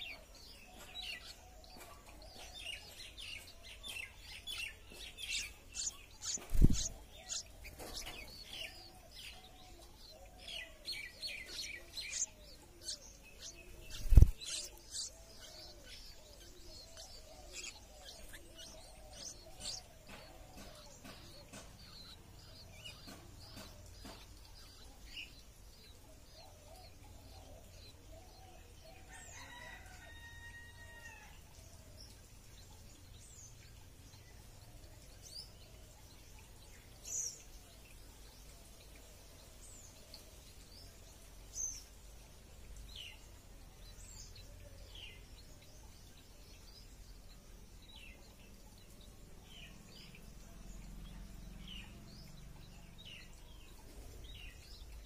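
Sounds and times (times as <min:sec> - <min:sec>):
nestlings begging chirps: 0:00.0 - 0:28.0.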